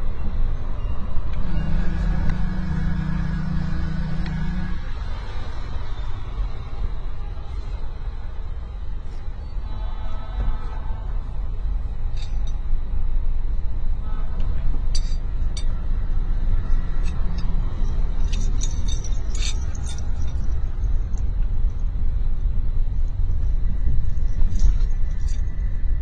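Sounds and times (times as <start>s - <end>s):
car road rumble inside cabin: 0.0s - 26.0s
light clinks and rattles: 12.1s - 12.8s, 14.8s - 15.9s, 16.5s - 21.9s, 24.3s - 25.7s.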